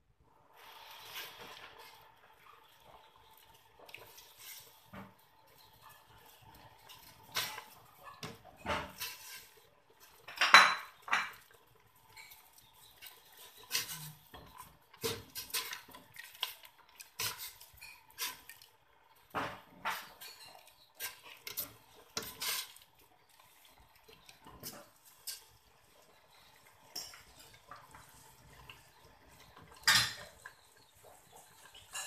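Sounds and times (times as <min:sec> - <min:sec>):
metal ladle scraping a pot: 0:05.8 - 0:09.6, 0:12.1 - 0:16.0, 0:19.8 - 0:22.9.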